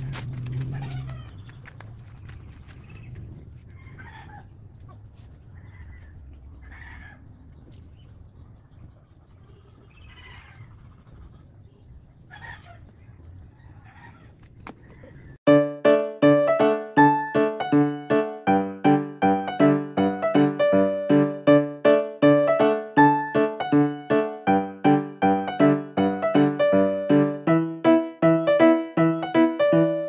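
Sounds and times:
chickens clucking: 0.3s - 15.4s
piano music: 15.5s - 30.0s.

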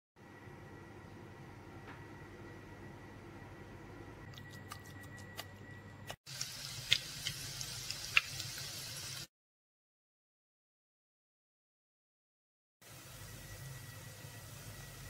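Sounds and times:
garlic sizzling in oil: 6.3s - 9.3s, 12.8s - 15.0s
oil crackling and popping: 6.3s - 9.3s.

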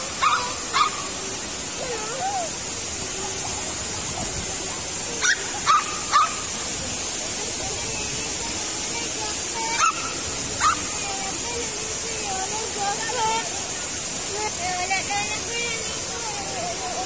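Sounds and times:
waterfall rushing: 0.0s - 17.0s
dog barking in sharp yaps: 5.2s - 6.4s.

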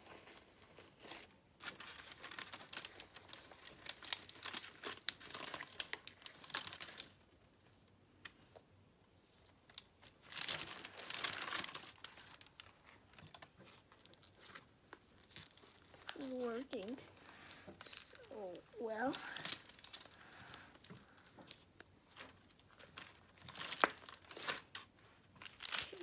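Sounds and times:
plastic crinkling: 0.0s - 26.0s
slime crackling: 9.8s - 24.8s, 25.4s - 26.0s.

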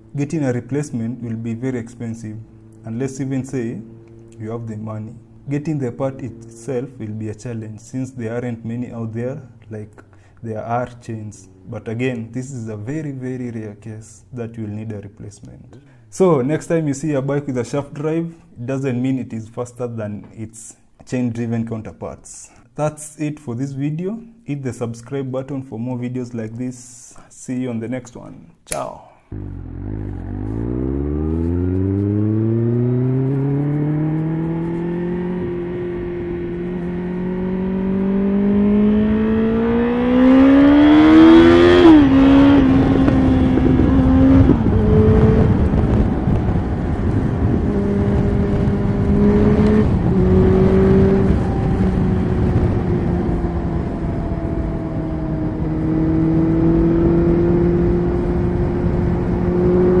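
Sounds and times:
motorcycle engine accelerating: 0.0s - 7.6s, 29.3s - 60.0s.

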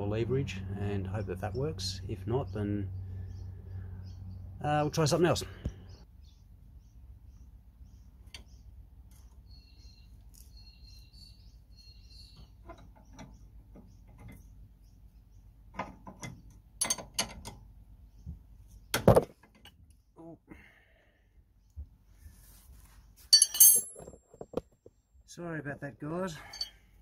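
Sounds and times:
birds chirping: 0.8s - 16.8s, 17.6s - 19.1s
metal spanners clinking: 16.2s - 17.5s, 23.3s - 24.4s, 26.4s - 26.9s.

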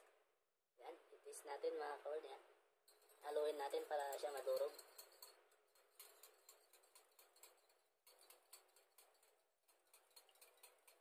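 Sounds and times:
whisk clicking on bowl: 3.0s - 11.0s.

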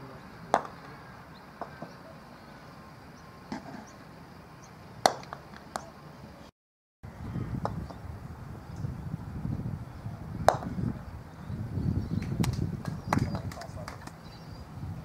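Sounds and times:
croquet mallets striking balls: 0.5s - 1.0s, 5.0s - 5.9s, 10.4s - 10.8s.

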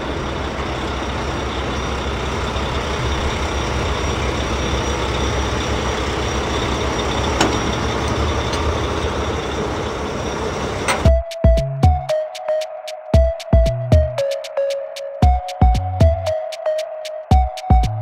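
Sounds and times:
truck engine running: 0.0s - 12.1s.

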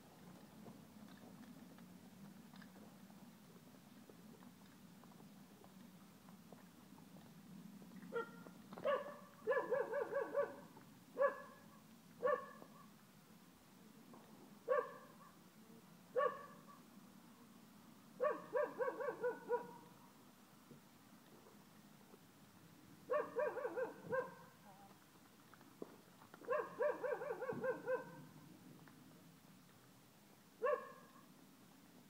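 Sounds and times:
dog yapping: 8.2s - 10.6s, 18.2s - 19.8s, 23.1s - 24.4s, 26.5s - 28.2s, 30.6s - 31.0s.

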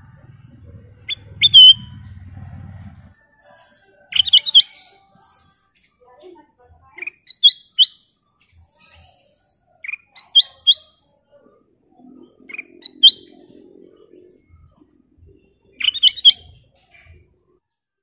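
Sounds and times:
bird calling sharp notes: 1.0s - 2.1s, 15.8s - 16.6s.

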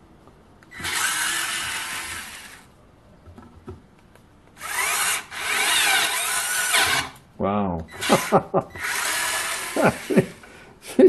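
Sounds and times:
electric screwdriver driving screw: 0.7s - 2.6s, 4.6s - 7.2s, 7.9s - 10.2s.

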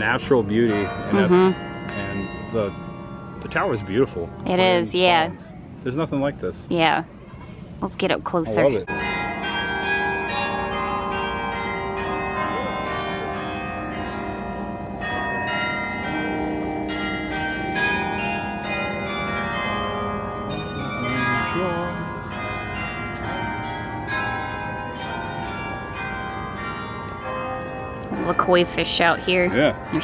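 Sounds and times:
carillon bells playing tune: 0.0s - 5.2s, 8.5s - 30.0s.

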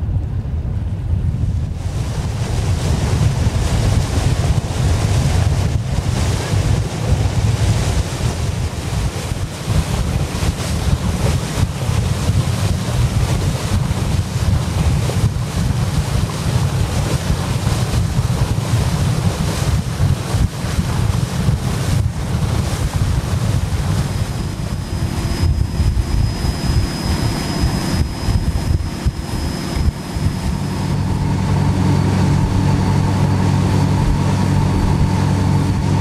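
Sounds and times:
water rushing along hull: 0.0s - 36.0s
wind buffeting microphone: 0.0s - 36.0s.

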